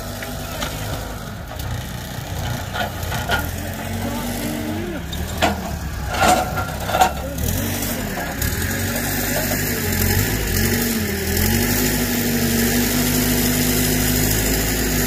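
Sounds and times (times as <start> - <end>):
diesel engine running: 0.0 - 15.0
sharp knocks and clanks: 5.2 - 7.4.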